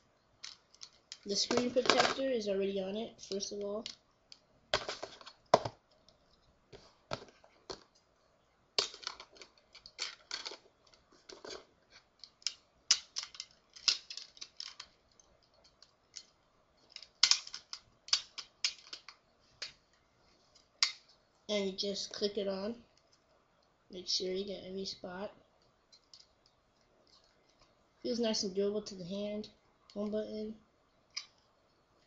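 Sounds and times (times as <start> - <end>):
plastic case clicking and scraping: 8.8 - 15.0.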